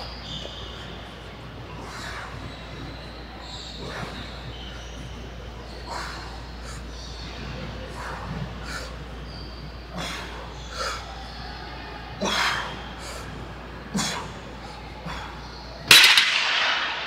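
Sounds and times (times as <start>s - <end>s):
barbell clanking down: 15.9s - 17.0s.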